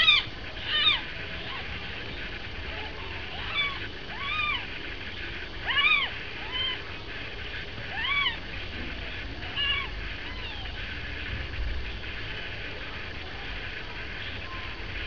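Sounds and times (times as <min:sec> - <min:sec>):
newborn kittens mewing: 0:00.0 - 0:01.9, 0:02.7 - 0:04.7, 0:05.6 - 0:06.9, 0:07.9 - 0:08.5, 0:09.4 - 0:10.8.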